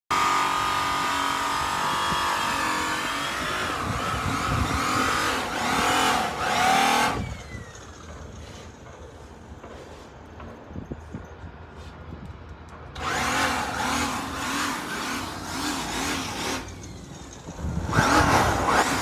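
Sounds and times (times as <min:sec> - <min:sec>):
diesel truck engine revving: 0:00.1 - 0:07.4, 0:13.0 - 0:17.0, 0:17.6 - 0:19.0.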